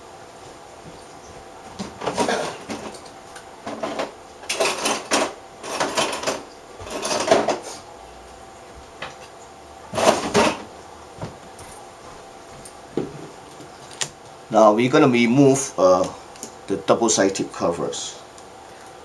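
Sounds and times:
parts rustling and clattering: 1.7s - 7.8s, 9.0s - 11.9s.

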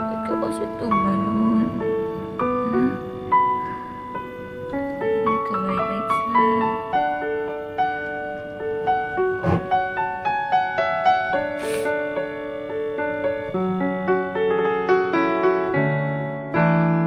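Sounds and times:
slow piano melody: 0.0s - 17.0s.

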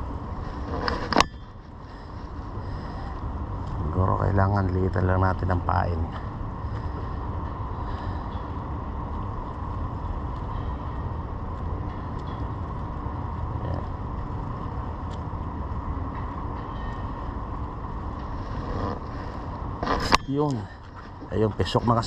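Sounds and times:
low rumble and hiss: 0.0s - 22.0s
faint ticks: 8.0s - 18.3s.

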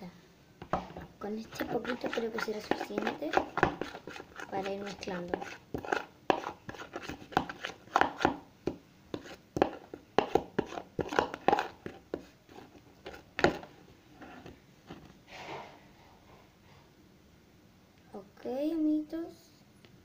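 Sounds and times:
spoon scraping plastic bowl: 0.8s - 8.4s, 9.1s - 15.0s.

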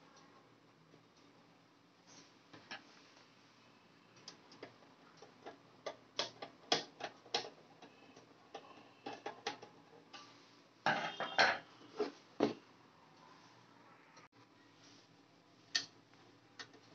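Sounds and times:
metal cover rattling: 10.9s - 11.7s.

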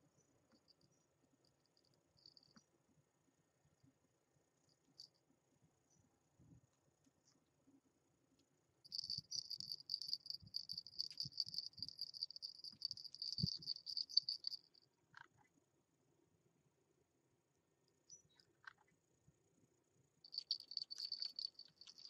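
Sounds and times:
collar bell jingling: 8.9s - 14.7s, 20.3s - 22.0s.

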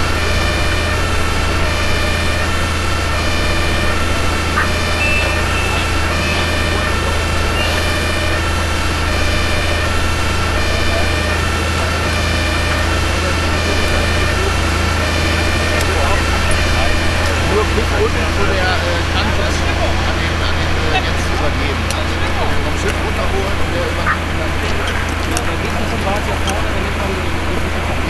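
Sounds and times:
two-tone siren: 0.0s - 19.8s
low drone of running engines: 0.0s - 28.0s.

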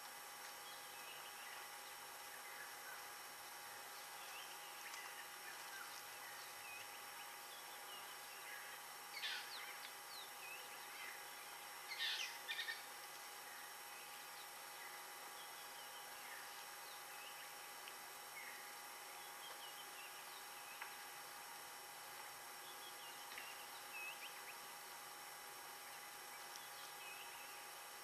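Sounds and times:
faint steady hiss: 0.0s - 28.0s.

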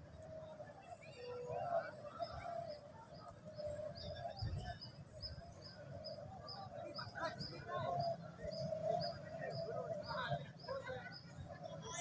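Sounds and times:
doves cooing in chorus: 7.8s - 10.4s.

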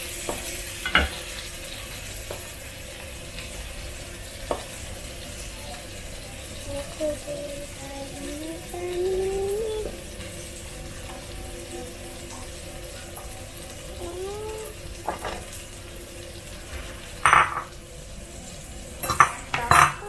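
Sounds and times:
water boiling in a pot: 0.0s - 20.0s
kitchenware clattering: 15.0s - 15.6s, 17.1s - 17.8s, 19.0s - 20.0s.

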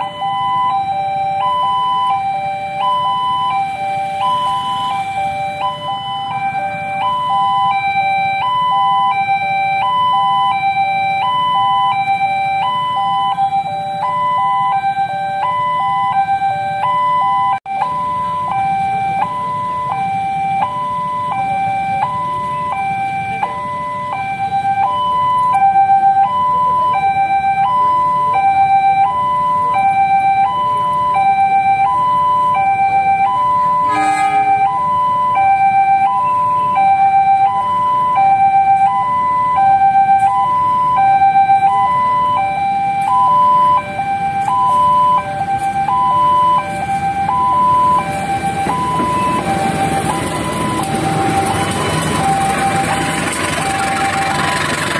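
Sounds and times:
level crossing alarm: 0.0s - 54.9s
motorcycles idling hum: 43.7s - 54.9s.

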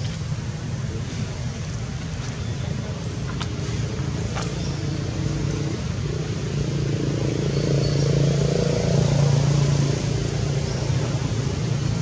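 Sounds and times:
vehicle engine humming: 0.0s - 12.0s.

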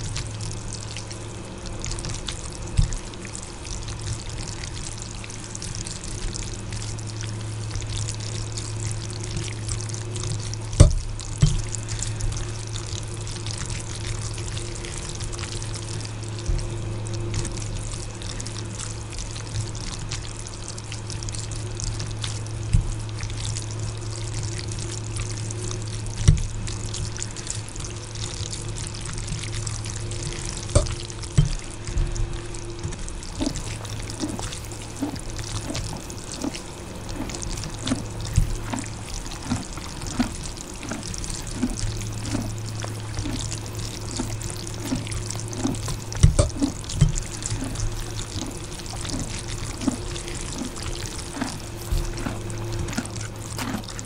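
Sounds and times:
steady low hum: 0.0s - 54.0s
slurping and chewing noodles: 33.2s - 54.0s.

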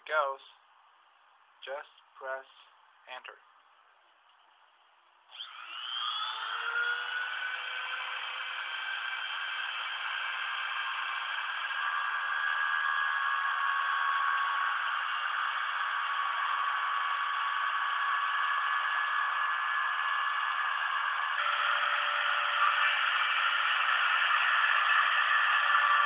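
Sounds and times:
machine mechanical whine: 5.3s - 26.0s.

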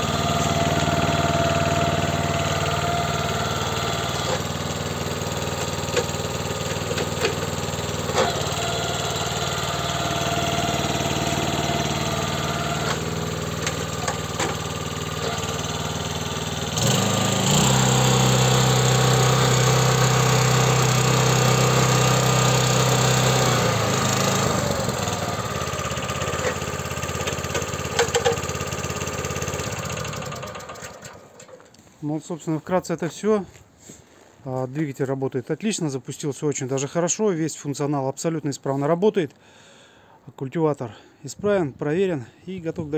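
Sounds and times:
tiller petrol engine running: 0.0s - 31.9s.

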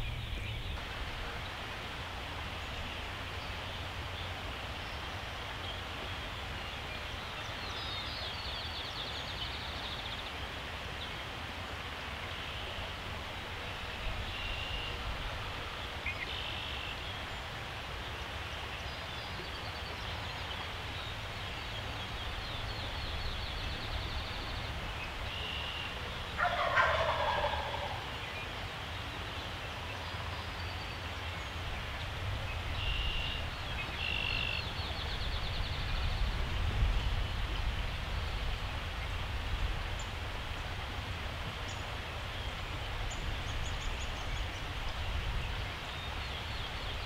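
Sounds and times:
low rumble of wind: 0.0s - 47.0s
wild turkey gobbling: 26.4s - 28.1s.

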